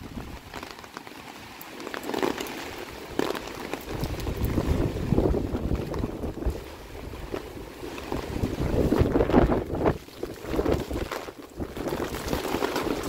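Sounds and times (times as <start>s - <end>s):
gusty wind buffeting microphone: 3.9s - 13.0s.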